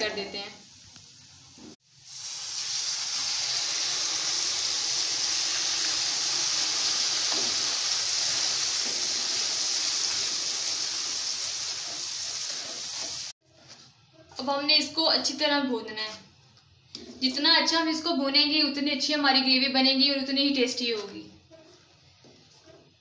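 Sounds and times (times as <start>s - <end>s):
hot oil sizzling: 0.0s - 13.4s.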